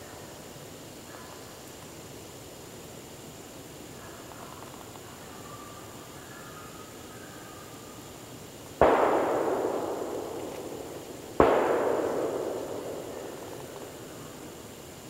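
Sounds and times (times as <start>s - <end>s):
gunshots echoing: 8.8s - 14.6s.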